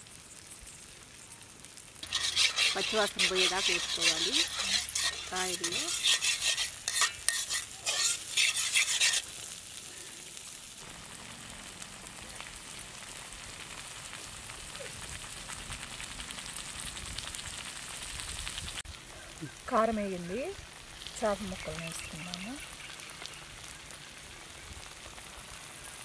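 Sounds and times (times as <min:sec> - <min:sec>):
paste sizzling in oil: 0:01.9 - 0:18.8, 0:19.4 - 0:26.0
metal spatula scraping pan: 0:02.0 - 0:09.4.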